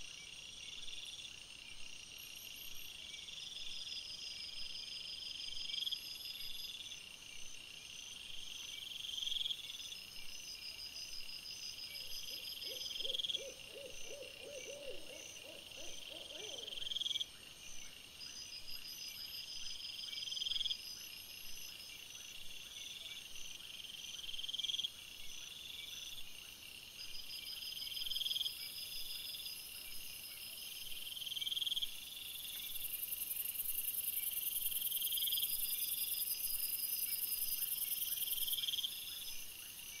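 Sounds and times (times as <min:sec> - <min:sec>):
low rapid pulsed insect call: 0:00.0 - 0:40.0
pulsing insect chirp: 0:07.5 - 0:23.0, 0:23.6 - 0:40.0.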